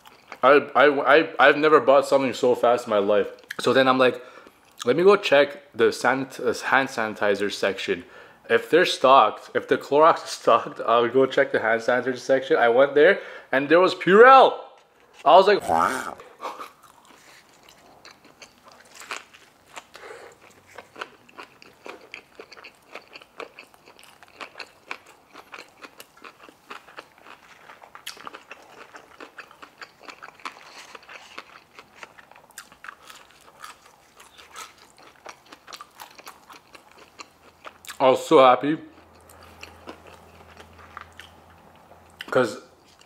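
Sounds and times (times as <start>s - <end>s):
crunchy chewing: 16.5s - 38.0s, 38.9s - 43.0s.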